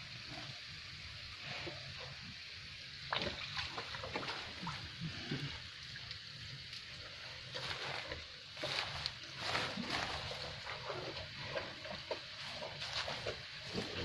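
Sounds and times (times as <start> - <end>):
cattle slurping feed: 0.0 - 14.0
wet splashes: 3.1 - 6.2.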